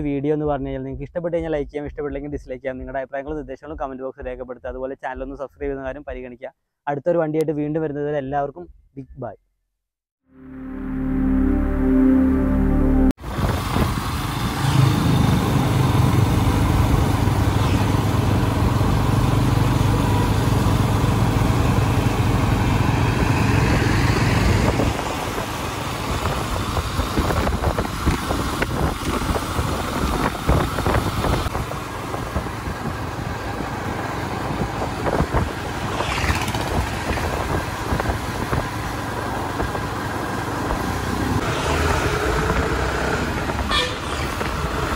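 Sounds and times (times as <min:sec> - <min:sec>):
loud engine drone: 0:10.4 - 0:44.9
uneven traffic noise: 0:13.2 - 0:44.9
brief rising sound: 0:35.7 - 0:37.6.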